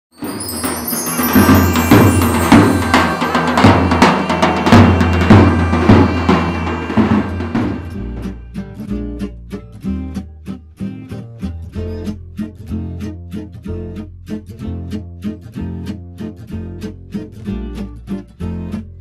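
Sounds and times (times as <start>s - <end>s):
steady drum beat: 0.2s - 8.9s
bass: 7.5s - 19.0s.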